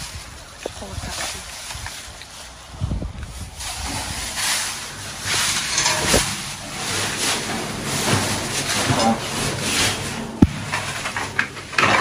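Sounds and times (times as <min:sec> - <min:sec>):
plastic bags rustling: 0:00.0 - 0:12.0
dull thumps: 0:10.4 - 0:10.9.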